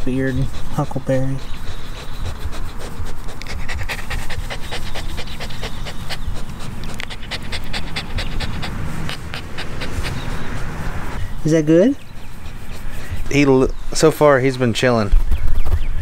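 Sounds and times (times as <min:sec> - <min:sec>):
puppy panting: 0:00.0 - 0:14.4.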